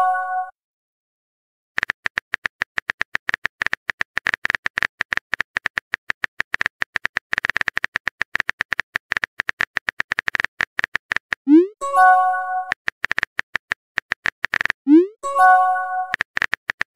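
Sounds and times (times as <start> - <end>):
smartphone keyboard typing taps: 1.8 - 11.4, 12.7 - 14.8, 16.1 - 16.9.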